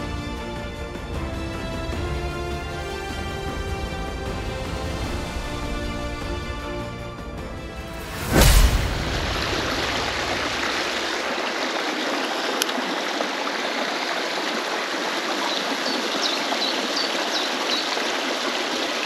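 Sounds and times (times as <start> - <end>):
brook splashing over stones: 8.0 - 19.0.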